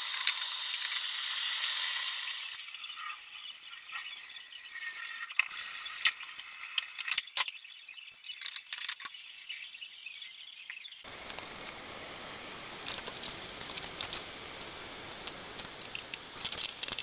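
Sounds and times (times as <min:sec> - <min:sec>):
sauce sizzling hiss: 0:11.0 - 0:17.0.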